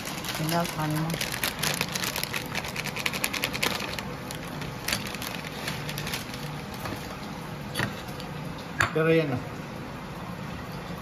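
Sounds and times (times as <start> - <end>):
plastic bag crinkling: 0.0 - 6.8.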